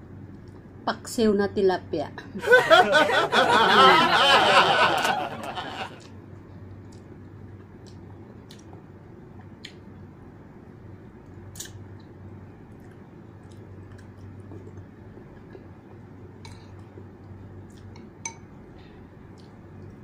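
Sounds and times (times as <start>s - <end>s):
steady low hum: 0.0s - 20.0s
soft chewing: 11.5s - 18.2s, 18.8s - 20.0s.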